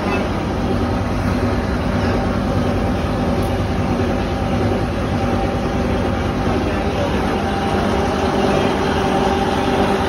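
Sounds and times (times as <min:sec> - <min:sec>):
granulator machine running: 0:00.0 - 0:10.0.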